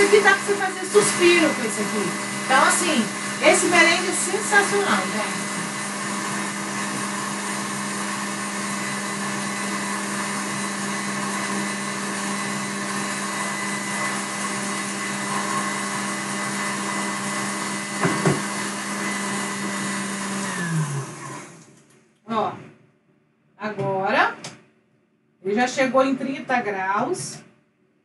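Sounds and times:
stand mixer motor whirring: 0.0 - 21.8.

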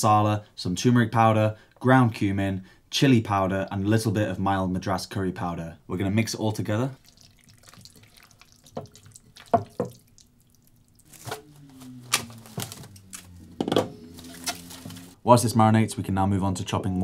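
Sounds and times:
cling film crinkling: 10.2 - 15.2.

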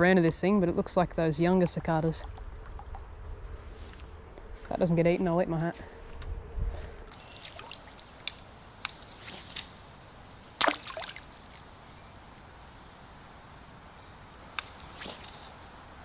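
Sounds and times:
small water splashes: 7.2 - 9.8, 10.5 - 11.7.

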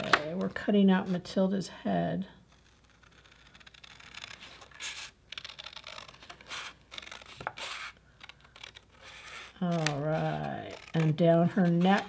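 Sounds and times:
scissors snipping paper: 2.7 - 12.0.

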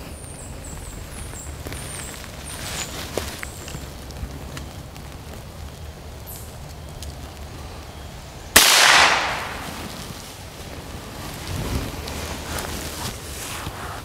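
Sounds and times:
gunshot with echo: 8.6 - 9.6.

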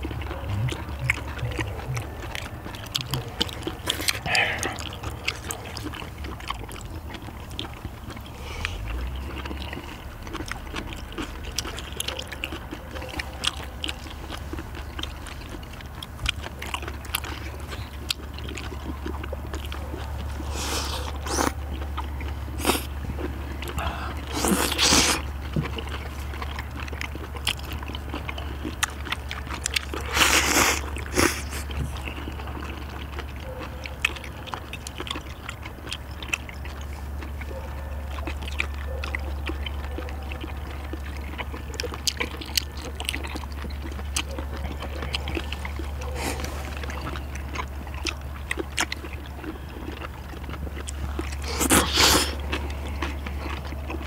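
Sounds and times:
noodle slurping: 0.0 - 6.4, 23.7 - 26.0, 29.6 - 32.3, 50.8 - 54.0
people chewing: 0.0 - 54.0.

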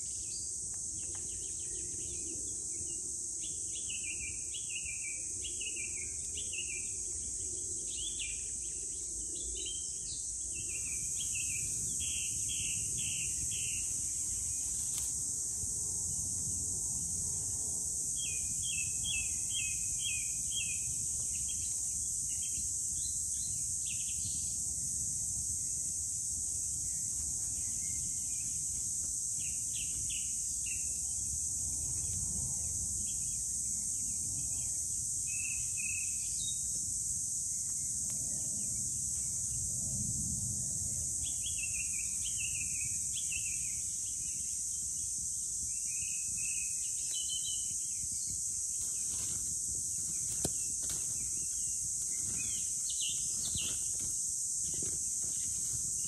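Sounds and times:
insect chorus: 0.0 - 56.0.

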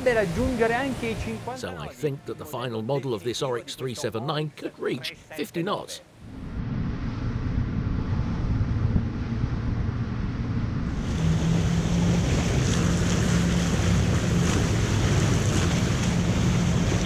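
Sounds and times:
water rushing and spray: 0.0 - 2.0, 10.9 - 17.0
outboard engines droning: 0.0 - 17.0
wind on microphone: 6.2 - 17.0.

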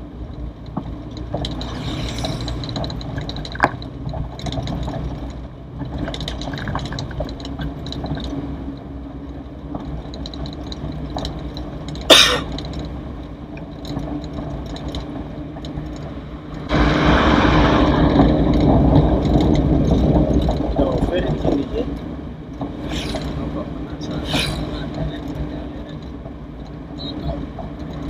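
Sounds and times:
car engine and road noise: 0.0 - 28.0
mechanical rattles: 1.1 - 8.4.

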